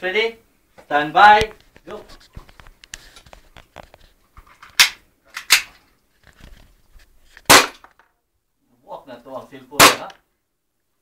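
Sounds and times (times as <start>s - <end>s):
airsoft pistol shots: 7.5s - 7.9s, 9.8s - 10.2s.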